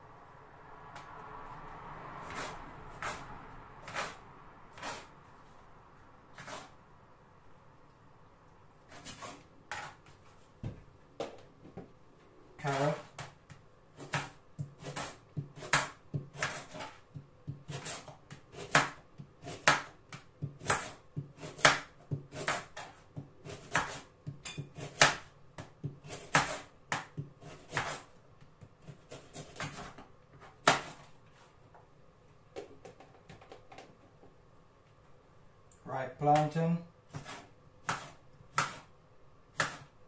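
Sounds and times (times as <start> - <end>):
knife chopping on plastic board: 13.0 - 31.1, 37.1 - 38.9, 39.5 - 40.0.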